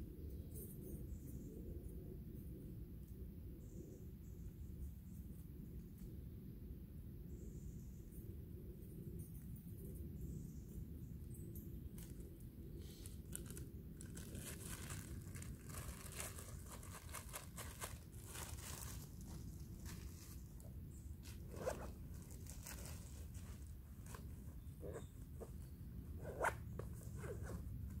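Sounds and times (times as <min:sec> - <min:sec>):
rustling of soft pouch: 0:11.9 - 0:28.0.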